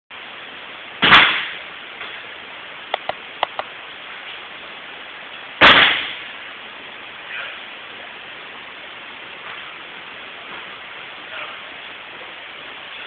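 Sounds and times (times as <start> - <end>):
steady hiss: 0.1 - 13.0
light taps: 2.9 - 3.7.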